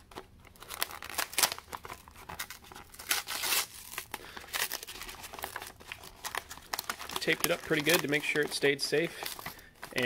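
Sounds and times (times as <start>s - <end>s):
tape and paper tearing: 2.4s - 4.1s.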